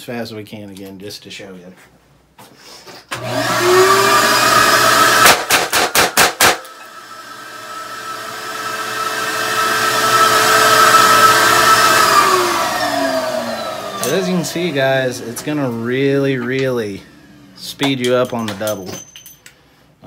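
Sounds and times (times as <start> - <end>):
extraction fan running: 3.1 - 18.7.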